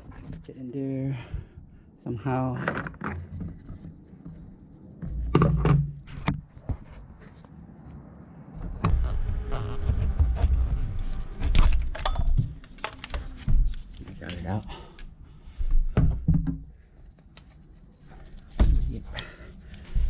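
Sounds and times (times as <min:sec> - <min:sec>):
low thudding and rubbing: 0:08.5 - 0:13.9
clicks and knocks of parts: 0:11.5 - 0:15.1.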